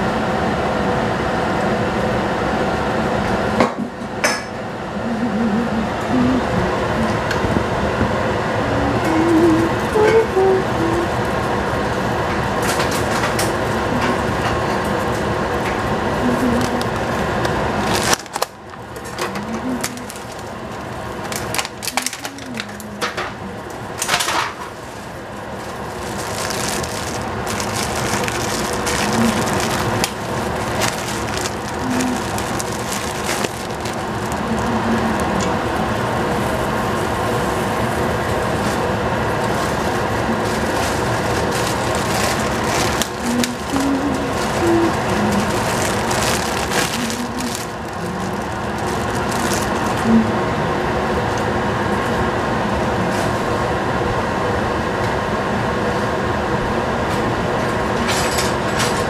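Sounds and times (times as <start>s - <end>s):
water boiling in a pot: 10.8s - 52.7s.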